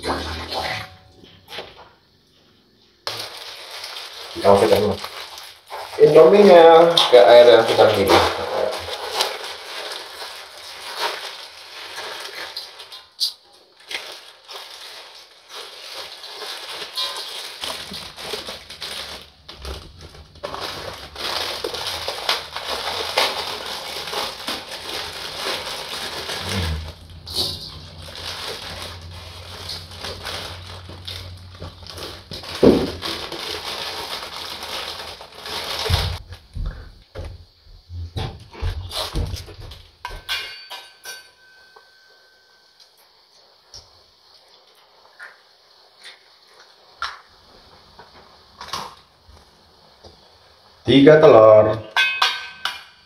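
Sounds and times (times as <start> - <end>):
dry noodles crushed: 3.0 - 36.3
plastic packets crinkling and tearing: 3.0 - 36.3
low steady hum: 17.2 - 37.1.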